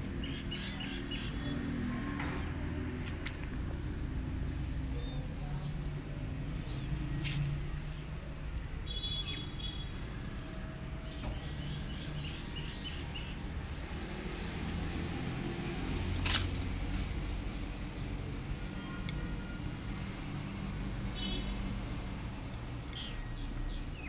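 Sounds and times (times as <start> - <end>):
small birds chirping: 0.0 - 15.3, 21.1 - 24.0.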